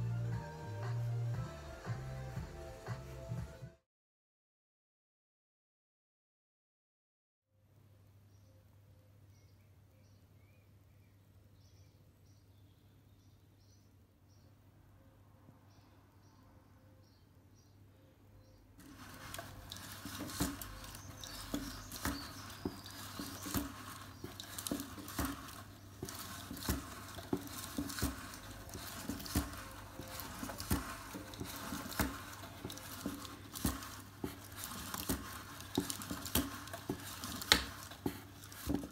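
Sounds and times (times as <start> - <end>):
cardboard automaton rattling: 18.8 - 38.9.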